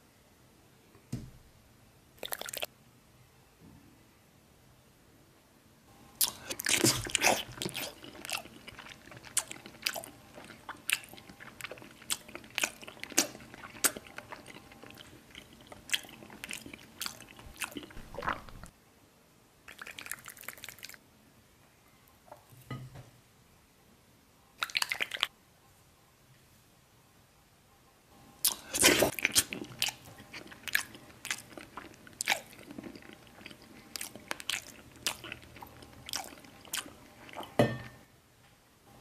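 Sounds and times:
chewing and crunching candy: 0:06.2 - 0:18.7, 0:19.7 - 0:21.0, 0:28.4 - 0:37.6.

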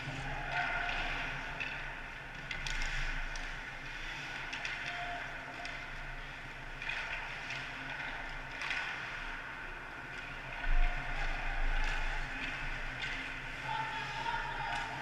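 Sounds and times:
faint stick and puck clicks: 0:00.0 - 0:15.0.

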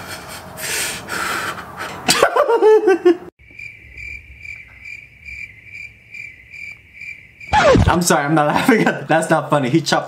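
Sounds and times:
people laughing: 0:02.1 - 0:03.3
crickets chirping: 0:03.4 - 0:08.7.

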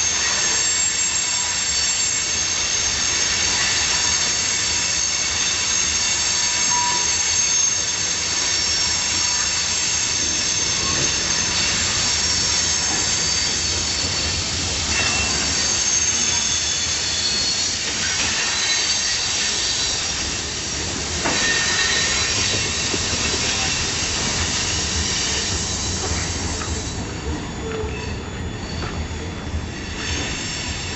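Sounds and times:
train wheels screeching: 0:00.0 - 0:30.9
train wheel knocks: 0:22.3 - 0:23.6.

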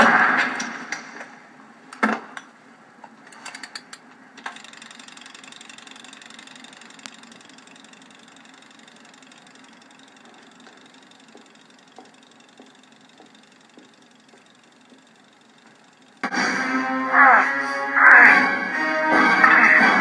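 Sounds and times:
timer dial clicks: 0:03.3 - 0:16.3
kitchen timer ticking: 0:03.4 - 0:16.3.

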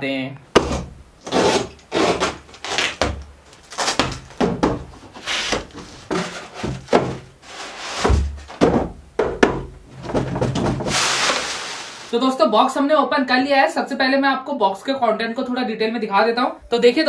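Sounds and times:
foam blocks rustling and knocking: 0:02.0 - 0:12.1
box flaps pulled open: 0:10.0 - 0:12.1.

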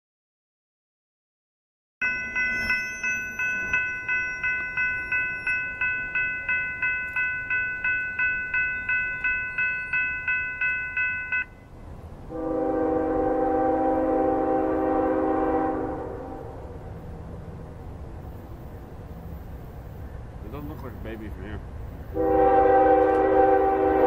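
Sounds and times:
railroad crossing bell ringing: 0:02.0 - 0:12.4
locomotive horn blast: 0:12.3 - 0:16.8, 0:22.1 - 0:24.0.

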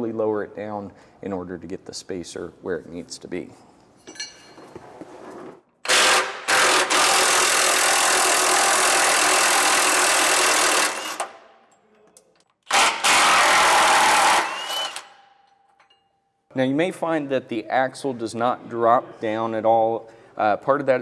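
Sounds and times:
impact wrench running: 0:05.8 - 0:11.4, 0:12.6 - 0:15.2.

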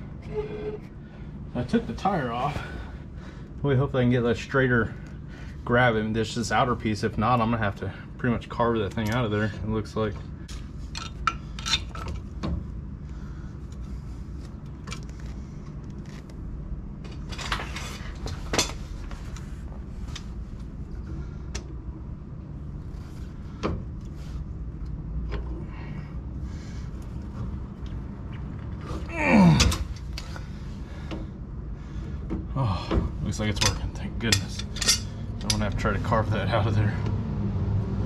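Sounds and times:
steady low hum: 0:00.0 - 0:38.0
tools clicking and scraping on metal: 0:10.5 - 0:12.3, 0:33.4 - 0:36.0.

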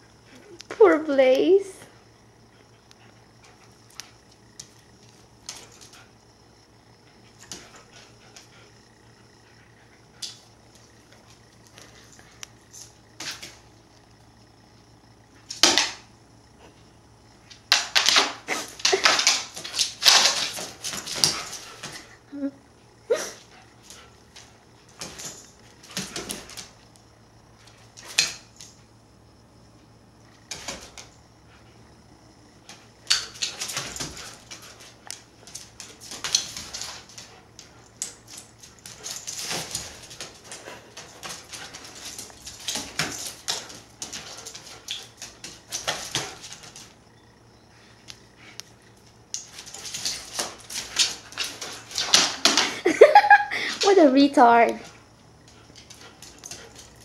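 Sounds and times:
dog claws clicking on wood floor: 0:17.5 - 0:22.0.

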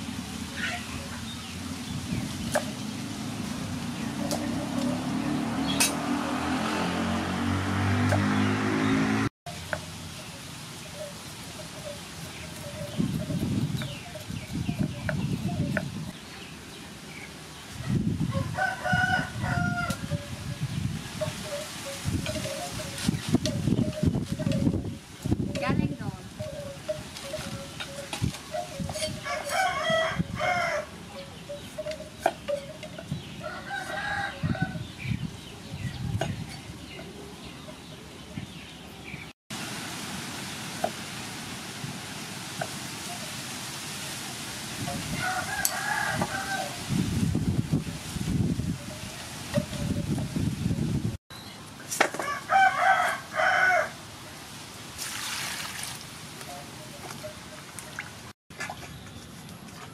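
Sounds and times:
rooster crowing: 0:18.3 - 0:20.3, 0:29.2 - 0:31.0, 0:33.4 - 0:34.8, 0:45.2 - 0:46.8, 0:52.2 - 0:54.0
water splashing in a bowl: 0:55.0 - 0:56.2.

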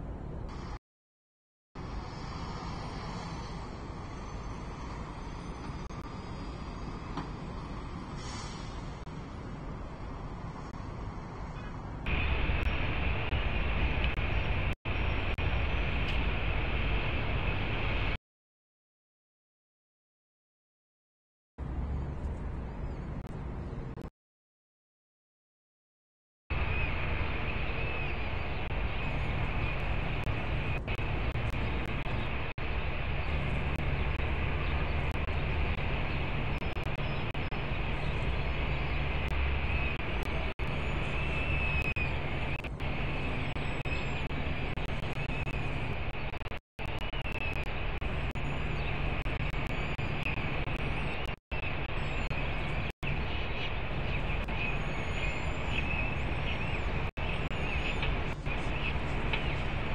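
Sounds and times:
low rumble and hiss of urban noise: 0:00.0 - 0:00.8, 0:01.8 - 0:18.2, 0:21.6 - 0:24.1, 0:26.5 - 0:59.9
freight train rumbling: 0:01.8 - 0:18.2.

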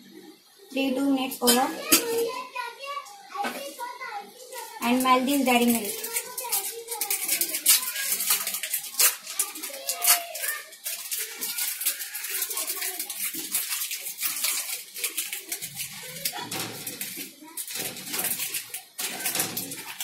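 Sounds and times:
chocolate wrapper crinkling: 0:04.5 - 0:20.0
chocolate bar breaking: 0:05.9 - 0:20.0.

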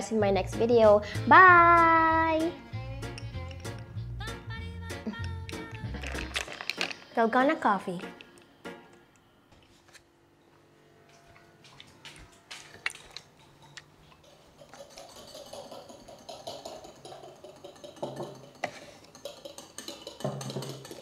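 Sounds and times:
wire whisk clinking in ceramic bowl: 0:14.6 - 0:21.0.

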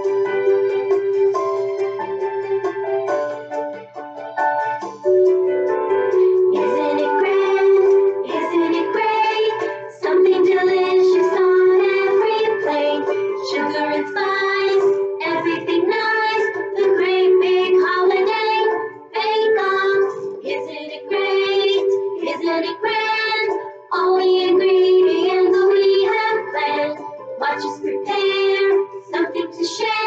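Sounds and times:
instrumental backing: 0:00.0 - 0:29.2
voices singing children's song: 0:06.1 - 0:30.0.

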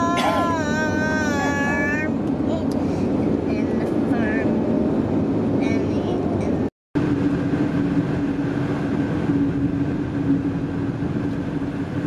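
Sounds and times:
constant low hum: 0:00.0 - 0:12.0
car engine and tyre drone: 0:06.4 - 0:12.0.

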